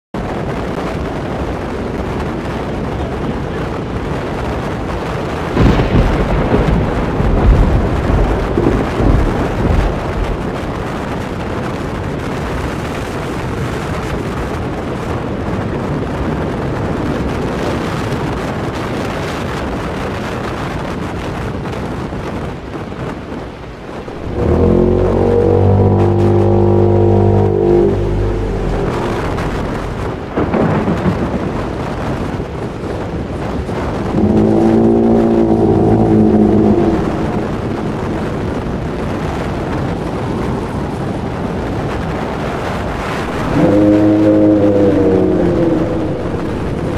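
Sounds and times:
hurricane wind rushing: 0.2 - 46.9
low rumble: 5.6 - 12.1, 24.0 - 31.8, 33.6 - 39.4, 43.0 - 46.9
deep droning howl: 5.7 - 11.8, 24.1 - 30.8, 33.8 - 39.0, 43.0 - 46.9.

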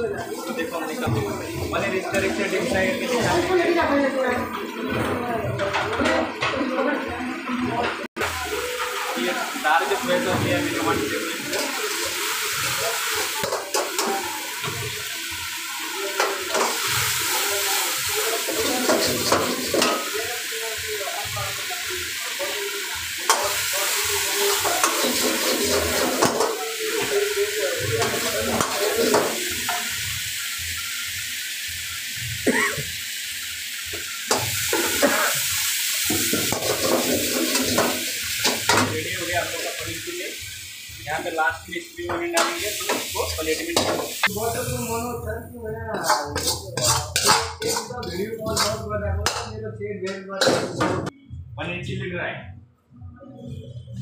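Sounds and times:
food sizzling in a wok: 0.0 - 49.5
ladle clanking on wok: 46.0 - 49.5.

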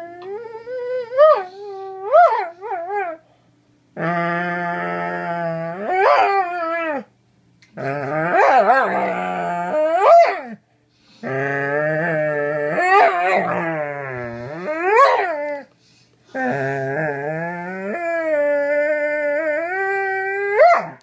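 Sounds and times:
dog howling: 4.0 - 7.1, 7.8 - 10.6, 11.2 - 15.7, 16.3 - 21.0.

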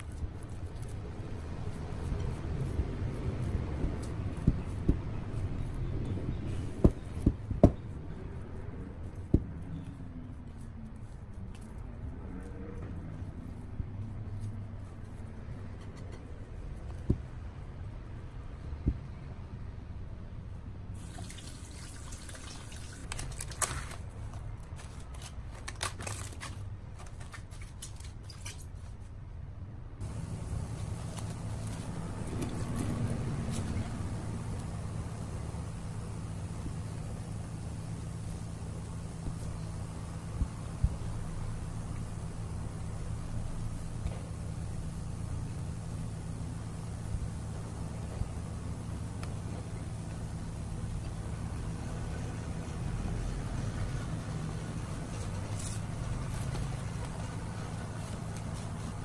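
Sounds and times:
hands kneading sticky dough: 0.0 - 19.8, 30.0 - 59.0
low steady hum: 0.0 - 59.0
cling film crinkling: 21.0 - 29.0, 30.0 - 41.0.

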